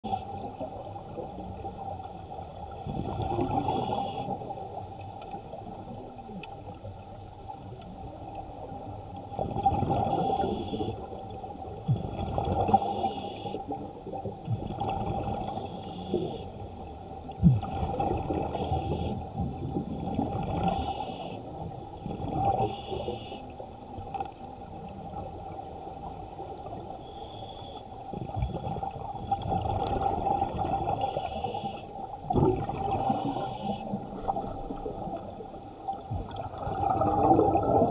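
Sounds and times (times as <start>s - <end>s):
exhaust bubbles gurgling: 2.8s - 4.8s, 8.5s - 13.1s, 13.7s - 15.6s, 17.2s - 20.9s, 28.2s - 31.3s, 32.2s - 37.9s
regulator inhale hiss: 3.6s - 4.5s, 10.1s - 11.1s, 12.7s - 13.7s, 15.4s - 16.6s, 18.5s - 19.2s, 20.7s - 21.5s, 22.6s - 23.5s, 27.0s - 28.0s, 31.0s - 32.0s, 33.0s - 34.0s.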